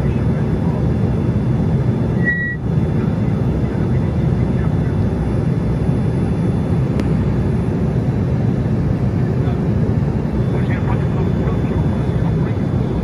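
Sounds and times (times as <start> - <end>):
jet cabin noise: 0.0 - 13.0.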